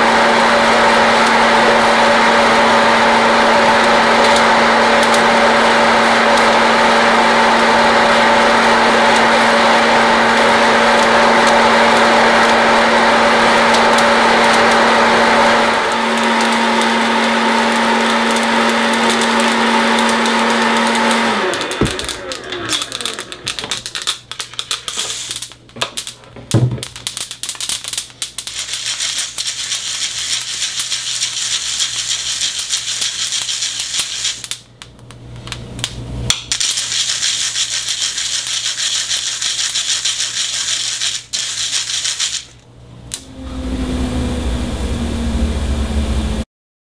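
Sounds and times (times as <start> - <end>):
motor winding down: 0.0 - 24.1, 43.1 - 46.5
popcorn popper fan humming: 0.0 - 46.4
coffee beans rattling in strainer: 3.7 - 26.2, 26.8 - 34.6, 36.6 - 42.6.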